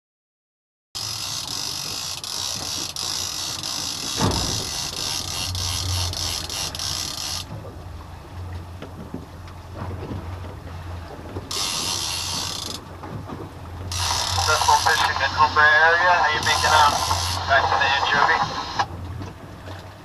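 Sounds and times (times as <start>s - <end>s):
fishing reel drag buzzing: 1.0s - 7.5s, 11.5s - 12.8s, 13.9s - 15.0s, 16.4s - 17.5s
boat engine humming: 1.0s - 20.0s.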